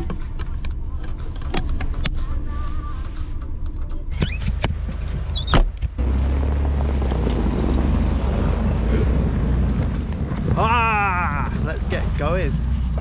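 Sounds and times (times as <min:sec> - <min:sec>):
short falling squeak: 0:04.1 - 0:05.7.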